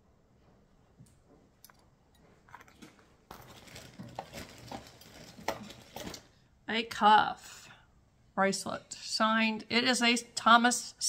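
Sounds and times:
rustling: 2.2s - 6.4s.

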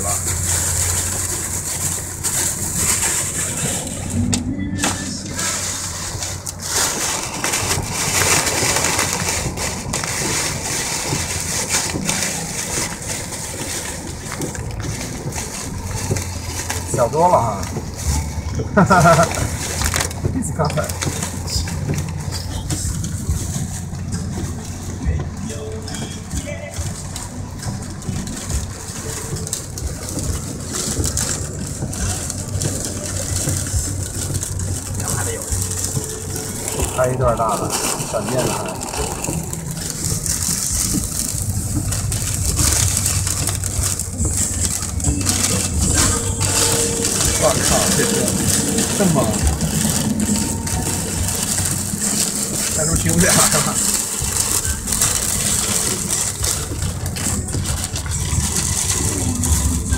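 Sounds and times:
engine and tyre hum: 0.0s - 59.9s
heavy rain on car windshield: 0.0s - 59.9s.

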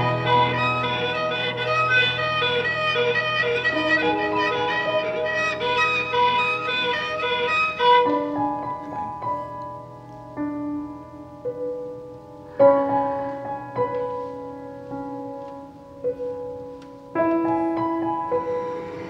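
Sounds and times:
bowed cello notes: 0.0s - 9.1s
piano chords ringing: 0.0s - 19.0s.

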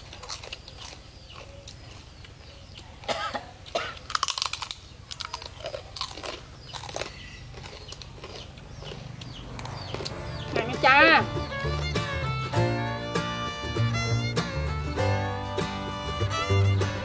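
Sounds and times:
people chewing and crunching: 0.0s - 12.5s.

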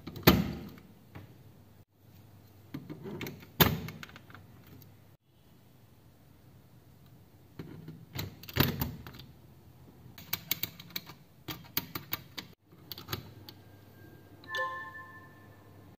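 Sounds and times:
brief pitched tone: 13.8s - 16.0s.

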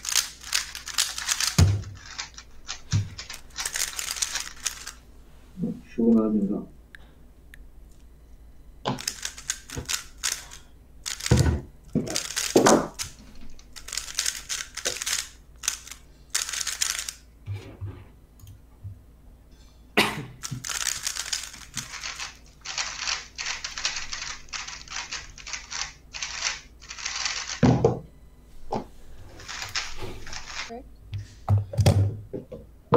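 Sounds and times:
speedcube clicking as it turns: 0.0s - 5.0s, 8.9s - 17.2s, 20.4s - 27.6s, 29.4s - 30.7s.

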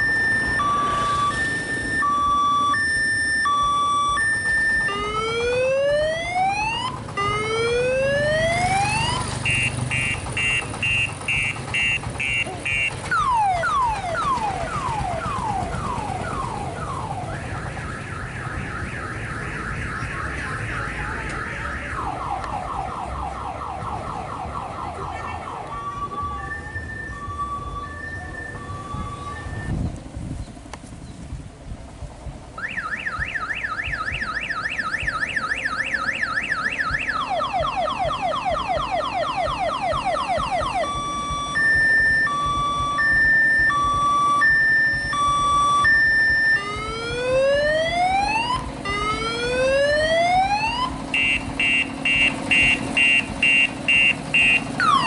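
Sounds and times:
electronic siren horn: 0.0s - 22.7s, 32.6s - 55.0s.

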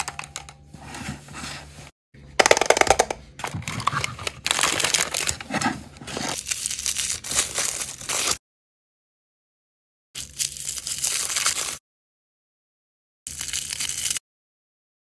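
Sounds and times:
plastic packaging crackling: 2.4s - 8.4s, 10.6s - 11.8s.

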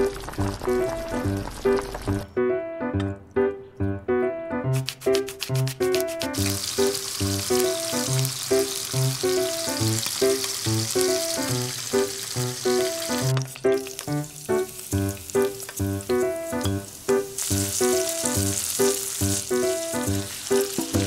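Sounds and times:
fish sizzling in frying pan: 0.0s - 2.2s, 5.2s - 21.0s
light music with steady beat: 0.8s - 6.9s, 15.0s - 21.0s.

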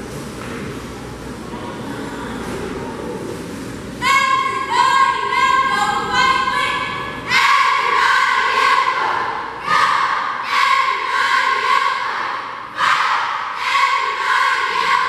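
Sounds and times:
crowd murmur: 0.0s - 15.0s
girls shouting cheer in unison: 4.0s - 15.0s.

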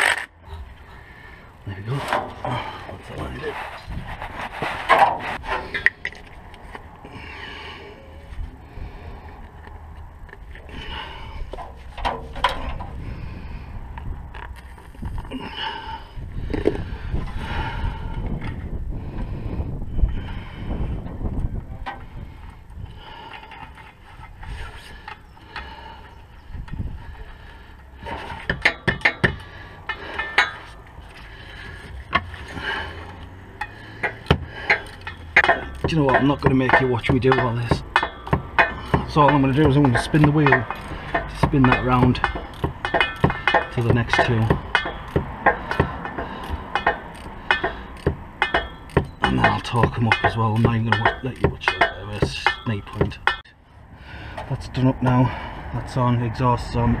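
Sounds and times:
scraping: 0.0s - 53.5s
steady low rumble: 0.0s - 57.0s
hand ratchet clicking: 33.0s - 53.5s
sharp knocks: 34.0s - 53.5s.

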